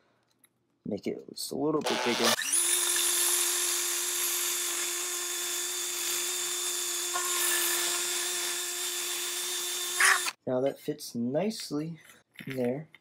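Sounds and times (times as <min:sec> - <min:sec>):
power drill whining: 0:01.8 - 0:10.4.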